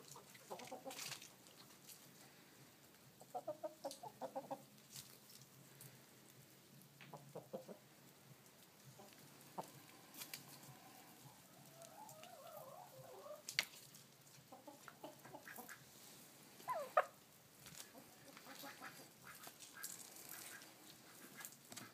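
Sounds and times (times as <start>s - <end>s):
chickens clucking softly: 0.0s - 2.3s, 2.9s - 5.0s, 7.0s - 13.6s, 14.2s - 15.9s, 16.6s - 17.2s, 17.8s - 21.9s
warbling poultry calls: 14.6s - 15.9s, 16.6s - 17.2s, 17.9s - 21.9s.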